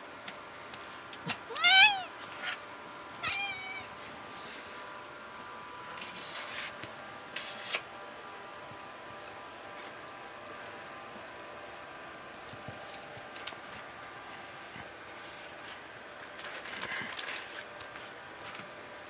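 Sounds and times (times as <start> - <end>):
cat meowing: 1.5 - 2.1, 3.2 - 3.9.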